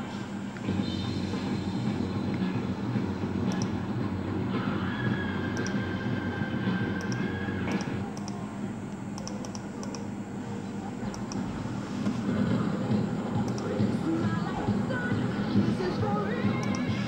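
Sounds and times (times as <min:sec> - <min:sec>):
computer mouse clicking: 0:07.0 - 0:08.4, 0:09.2 - 0:10.1, 0:16.6 - 0:16.9.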